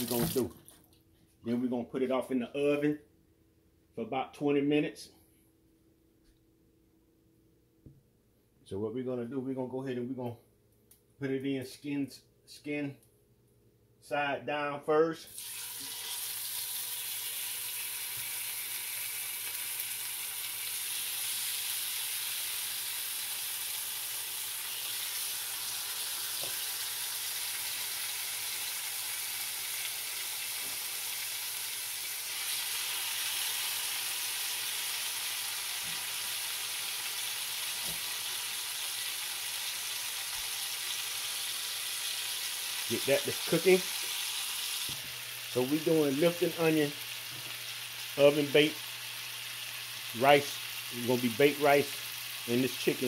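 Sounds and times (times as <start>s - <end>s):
chicken sizzling in hot oil: 15.3s - 53.0s.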